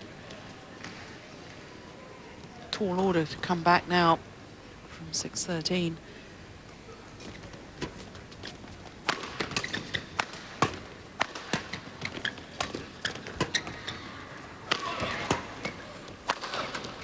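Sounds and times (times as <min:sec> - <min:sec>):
shoes squeaking on court floor: 0:07.2 - 0:10.2, 0:11.6 - 0:14.3
rackets striking shuttlecock: 0:09.0 - 0:13.8, 0:14.6 - 0:17.0.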